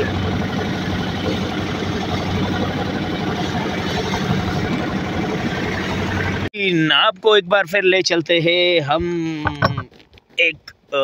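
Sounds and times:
boat engine droning: 0:00.0 - 0:06.5
water rushing along hull: 0:00.0 - 0:06.5.

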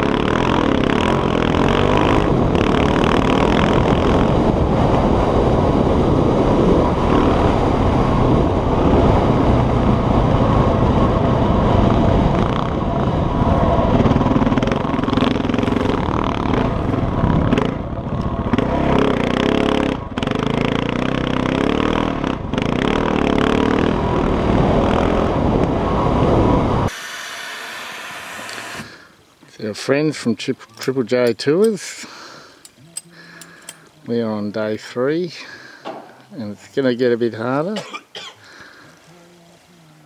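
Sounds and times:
off-road motorbike engine: 0:00.0 - 0:27.0.

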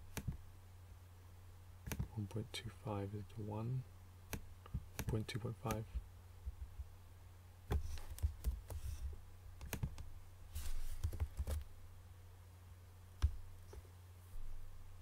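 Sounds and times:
low electrical hum: 0:00.0 - 0:15.0
computer mouse clicks: 0:00.1 - 0:00.4, 0:09.6 - 0:10.1.

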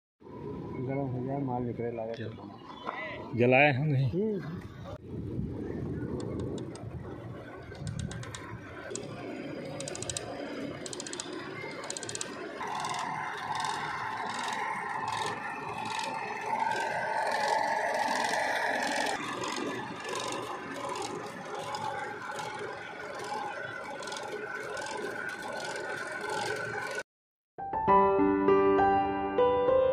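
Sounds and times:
spinning head whirring: 0:05.3 - 0:27.0
rhythmic rattling clicks: 0:06.1 - 0:27.0.

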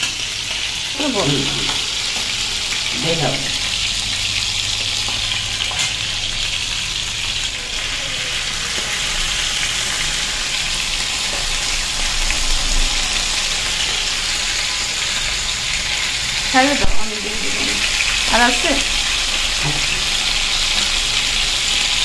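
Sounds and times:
food sizzling in hot oil: 0:00.0 - 0:22.0.

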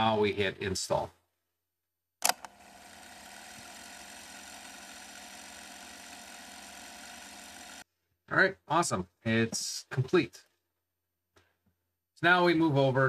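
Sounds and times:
sharp click: 0:02.2 - 0:02.5.

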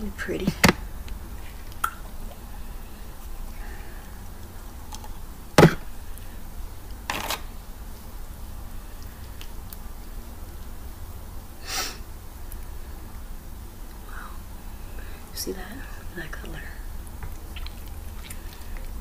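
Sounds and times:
low steady hum: 0:00.0 - 0:19.0
crackly rustle: 0:01.0 - 0:05.3, 0:17.0 - 0:19.0.

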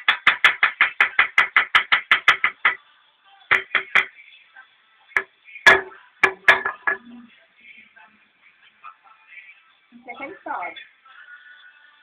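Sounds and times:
knocks on a hard surface: 0:00.0 - 0:02.8, 0:03.5 - 0:04.1, 0:05.7 - 0:07.1.

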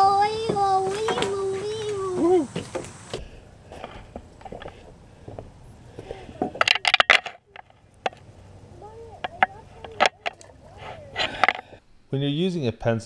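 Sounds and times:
sharp clicks and rattles: 0:06.3 - 0:10.6, 0:11.2 - 0:11.8.

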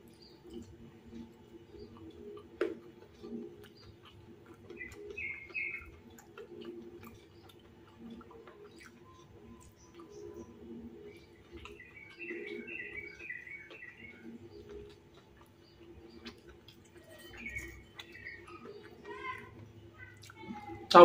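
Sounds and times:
crunchy chewing: 0:00.0 - 0:20.9
bird chirping: 0:00.0 - 0:21.0
wet mouth clicks: 0:01.9 - 0:10.2.

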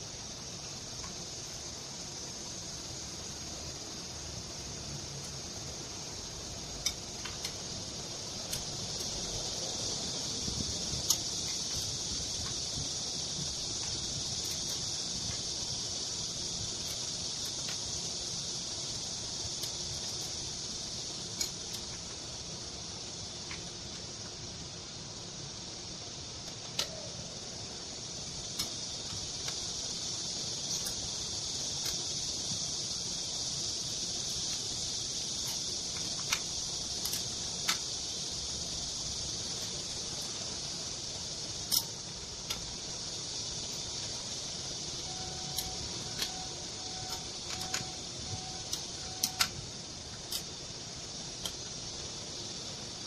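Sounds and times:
steady high hiss: 0:00.0 - 0:53.0
metal tools clicking and tapping: 0:21.4 - 0:22.0, 0:35.4 - 0:37.8, 0:45.1 - 0:50.5.

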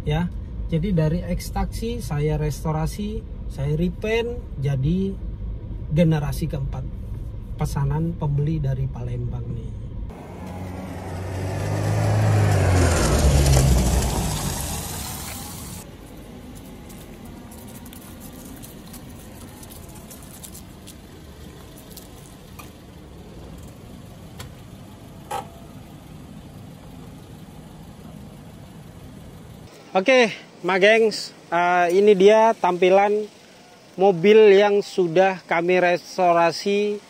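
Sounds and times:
faint outdoor hiss: 0:00.0 - 0:37.0
car driving past on paving: 0:10.1 - 0:15.9.

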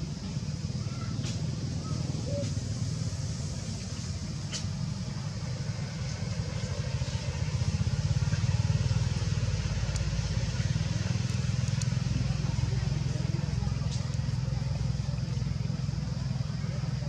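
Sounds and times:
vehicle engine rumbling: 0:00.0 - 0:17.0
faint clicks: 0:09.8 - 0:10.2, 0:11.2 - 0:12.1.

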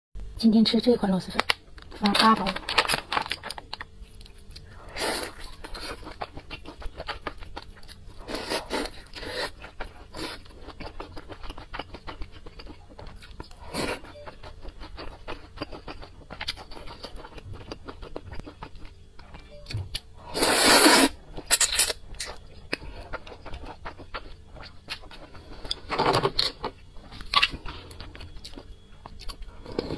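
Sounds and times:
wet chewing: 0:02.7 - 0:13.6
noodle slurp: 0:20.3 - 0:21.2.

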